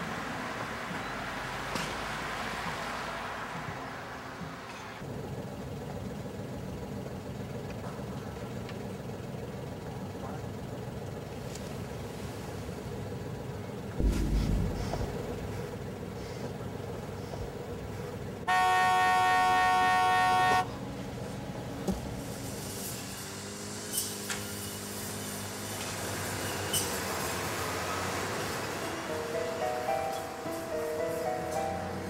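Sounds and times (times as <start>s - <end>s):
low thud: 14.0s - 16.1s
car horn blast: 18.5s - 20.8s.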